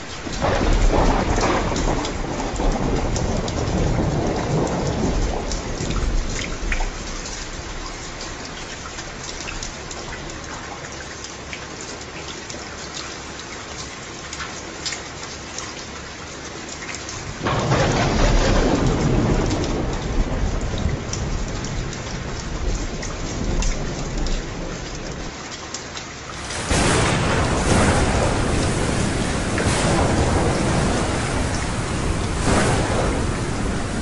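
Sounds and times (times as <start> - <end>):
rolling thunder: 0.0 - 8.0, 17.4 - 25.3, 26.4 - 34.0
steady rain: 0.0 - 34.0.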